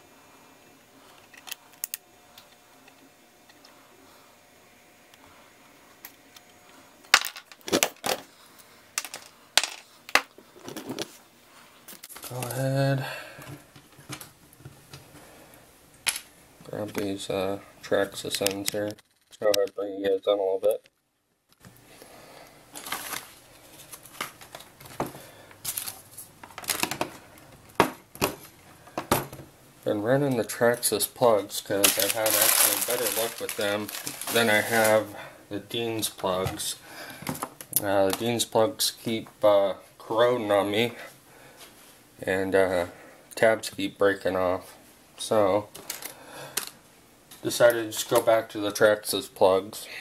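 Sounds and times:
small parts clicking and knocking: 9.0 - 10.3.

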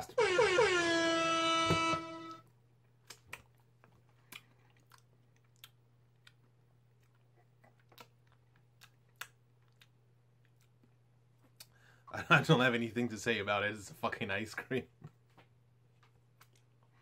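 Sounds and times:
mouth clicks and smacks eating: 2.9 - 11.8.

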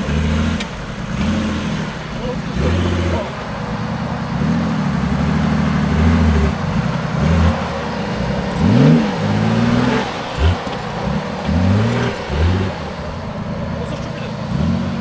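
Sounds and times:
off-road vehicle engine revving: 0.0 - 15.0.

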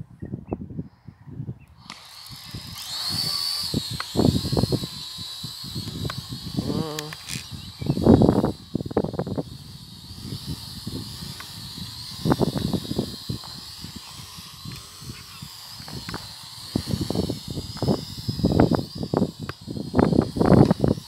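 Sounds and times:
wind buffeting microphone: 0.0 - 21.0
drone propellers whining: 1.7 - 21.0.

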